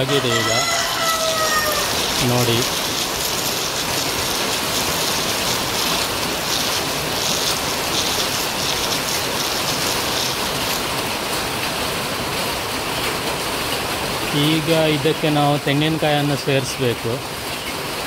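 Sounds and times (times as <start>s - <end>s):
stone grinder wet gritty swishing: 0.0s - 11.4s.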